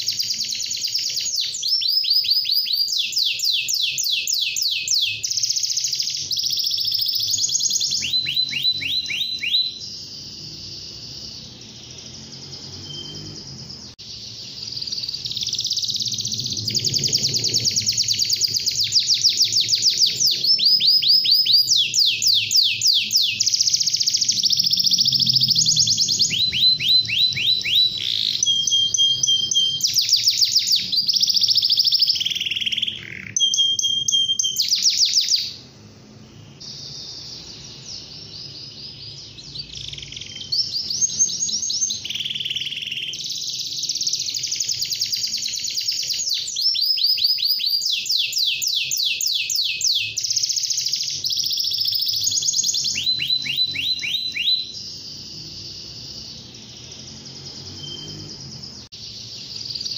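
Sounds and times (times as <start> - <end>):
canary singing trills: 0.0 - 59.9.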